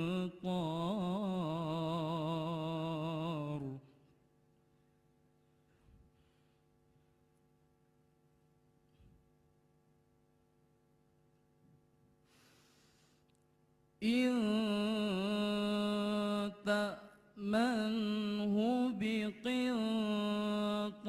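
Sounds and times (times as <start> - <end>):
man reciting melodically: 0.0 - 3.9, 14.0 - 21.0.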